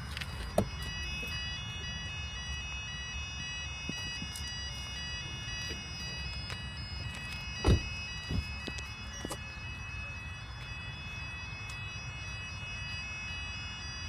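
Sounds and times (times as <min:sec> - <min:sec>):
level crossing warning alarm: 0:00.0 - 0:14.0
loud thump: 0:07.6 - 0:08.4.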